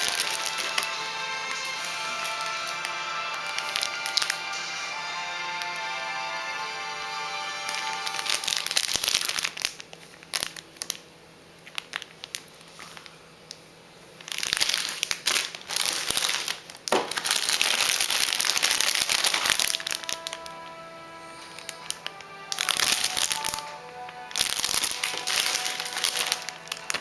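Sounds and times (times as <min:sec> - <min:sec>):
plastic bags crinkling: 0:00.0 - 0:06.2, 0:07.0 - 0:27.0
background music: 0:00.0 - 0:09.7, 0:17.3 - 0:27.0.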